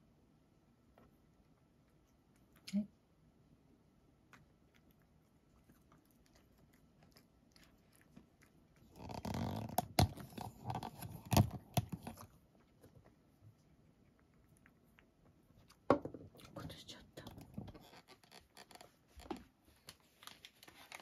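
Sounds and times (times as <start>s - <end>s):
cat chewing with sharp clicks: 1.0s - 2.7s, 4.0s - 16.6s.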